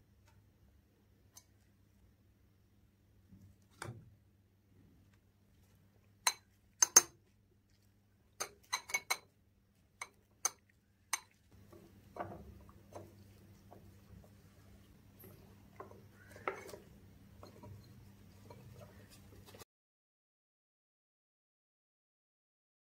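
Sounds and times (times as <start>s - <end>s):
low steady hum: 0.0s - 19.6s
spoon clinking against glass: 8.4s - 9.3s.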